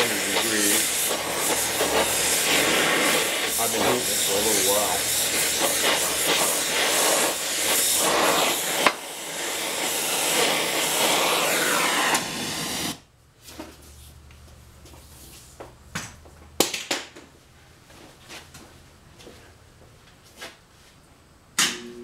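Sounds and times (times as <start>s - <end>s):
gas torch flame hissing: 0.0s - 13.1s.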